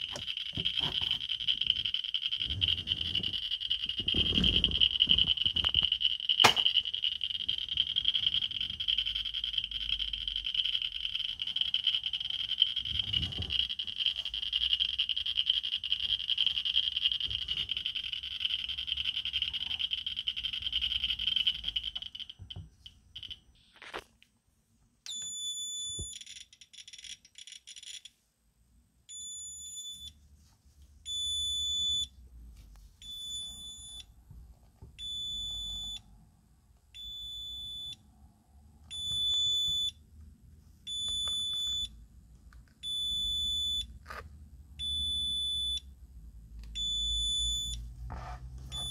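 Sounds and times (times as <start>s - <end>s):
high-pitched dosimeter alarm beeps: 0.0s - 23.6s, 25.1s - 28.0s, 29.1s - 30.2s, 31.0s - 32.1s, 33.0s - 34.2s, 35.0s - 36.1s, 37.0s - 38.1s, 38.9s - 40.0s, 40.9s - 42.0s, 42.8s - 43.9s, 44.8s - 45.9s, 46.8s - 47.9s.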